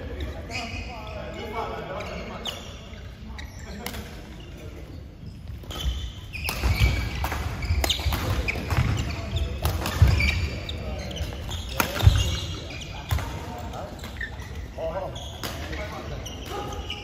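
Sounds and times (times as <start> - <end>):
shoes squeaking on court: 0.0 - 17.0
racket hitting shuttlecock: 5.6 - 10.4.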